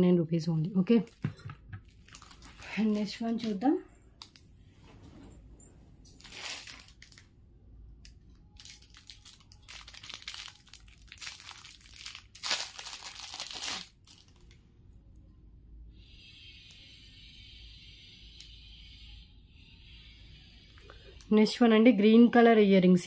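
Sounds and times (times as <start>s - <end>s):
plastic packets crinkling: 1.1s - 4.5s, 6.1s - 7.4s, 8.0s - 14.6s.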